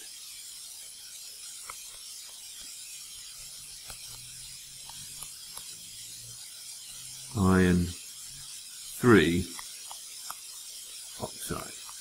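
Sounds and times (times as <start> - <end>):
steady hiss: 0.0 - 12.0
stylus ticking on tablet screen: 0.0 - 12.0.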